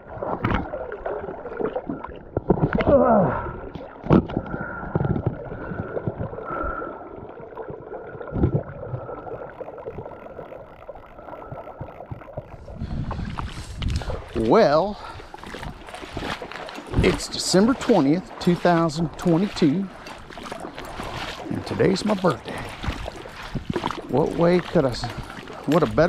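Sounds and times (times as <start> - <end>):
river water lapping and gurgling: 0.0 - 26.0.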